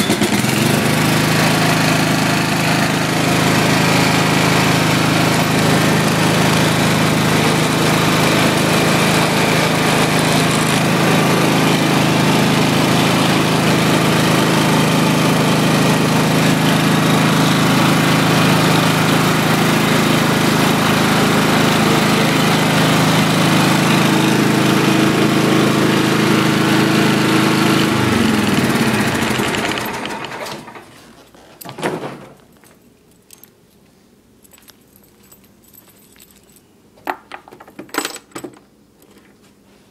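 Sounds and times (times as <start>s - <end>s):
lawn tractor engine running: 0.0s - 31.2s.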